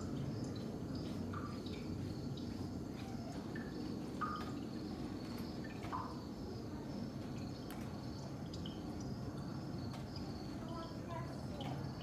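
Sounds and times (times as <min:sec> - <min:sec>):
drip-like plinks: 0:08.4 - 0:09.5.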